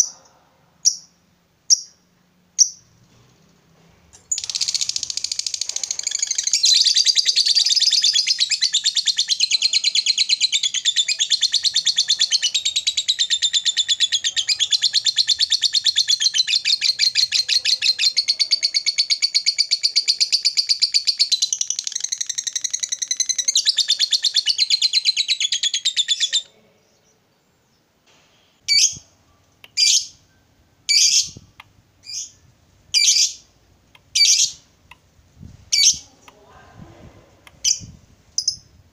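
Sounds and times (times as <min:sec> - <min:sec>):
bird high-pitched trill: 0:04.3 - 0:26.4, 0:29.8 - 0:31.4, 0:34.2 - 0:34.6.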